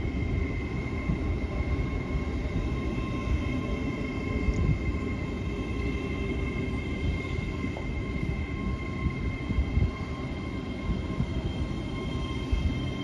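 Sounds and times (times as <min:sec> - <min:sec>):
train rumbling: 0:00.0 - 0:13.0.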